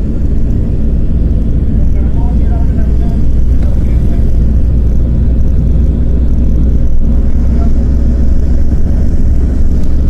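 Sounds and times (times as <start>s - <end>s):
vehicle engine and road rumble: 0.0s - 10.0s.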